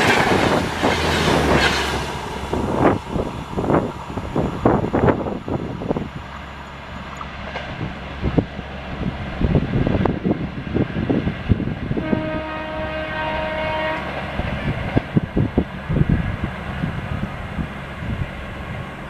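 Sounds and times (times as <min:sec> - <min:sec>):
train wheels clattering on rails: 0:00.0 - 0:05.3, 0:13.8 - 0:16.1
train horn: 0:12.0 - 0:14.2.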